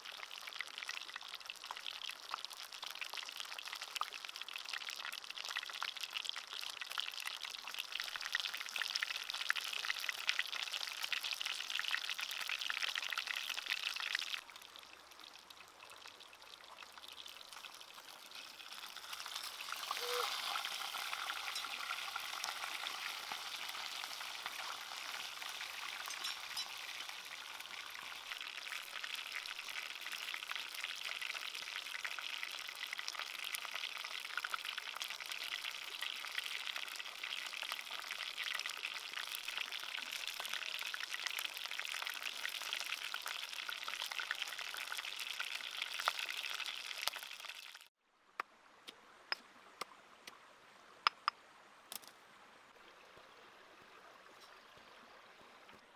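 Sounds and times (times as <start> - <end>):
fish frying in hot oil: 0.0 - 47.9.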